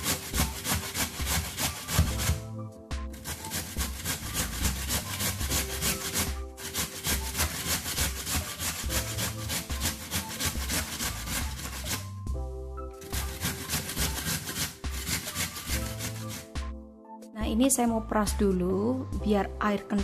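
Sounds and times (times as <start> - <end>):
potato rasping on grater: 0.0 - 2.5, 3.1 - 12.2, 13.0 - 16.6.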